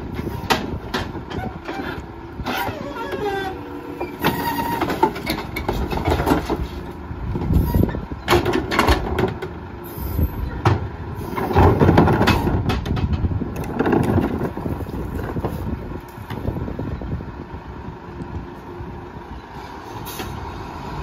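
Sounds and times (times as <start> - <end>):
garbage truck engine running: 0.0 - 21.0
trash cart banging on hopper: 0.1 - 9.6, 10.4 - 15.7.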